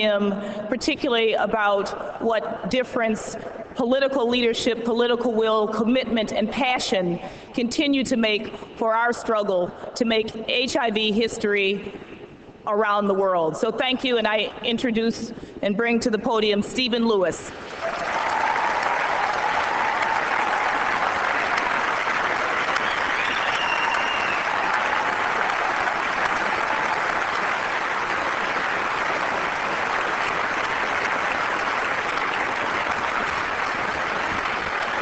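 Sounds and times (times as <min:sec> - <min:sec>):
audience applauding: 0:17.6 - 0:35.0.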